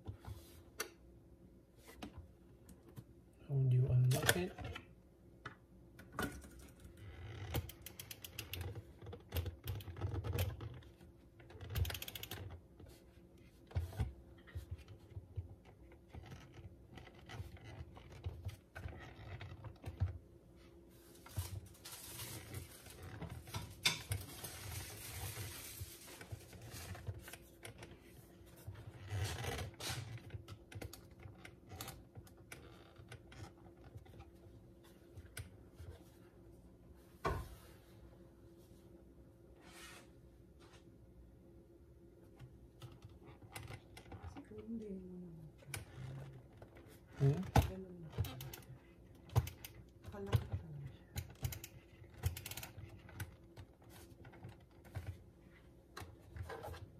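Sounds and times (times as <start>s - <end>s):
rustling: 20.6s - 28.6s.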